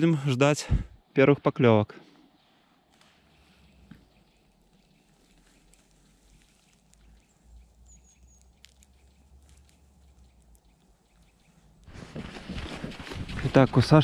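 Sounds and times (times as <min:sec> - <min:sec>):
faint ticks: 0:02.9 - 0:11.9.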